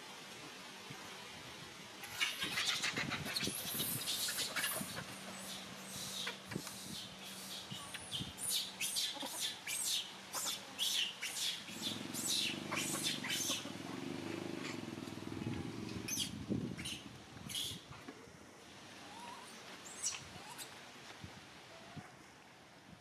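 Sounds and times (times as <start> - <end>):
small birds chirping: 2.0 - 17.8
low steady rumble: 11.7 - 17.4.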